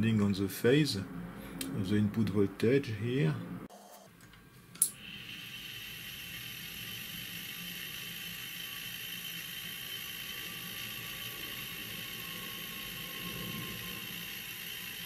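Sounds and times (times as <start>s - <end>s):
small motor whirring: 5.0s - 15.0s.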